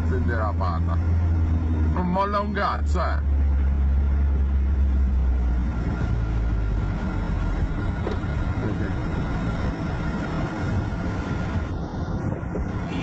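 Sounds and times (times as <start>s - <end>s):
car engine and road rumble: 0.0s - 13.0s.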